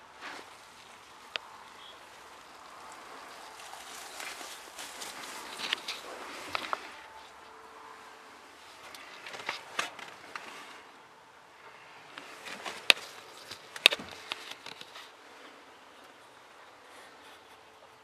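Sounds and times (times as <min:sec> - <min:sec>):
handling noise: 0:00.0 - 0:07.6, 0:12.1 - 0:15.2
footsteps in grass: 0:00.2 - 0:07.6.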